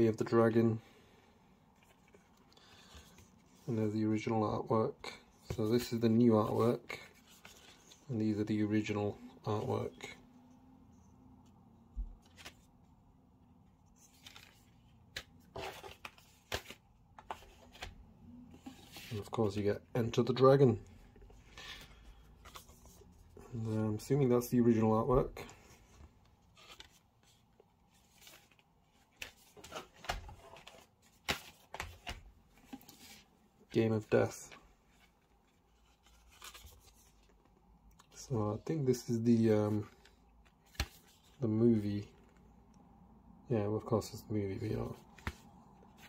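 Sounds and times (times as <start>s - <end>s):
disc cases knocking and rustling: 29.1s - 33.1s.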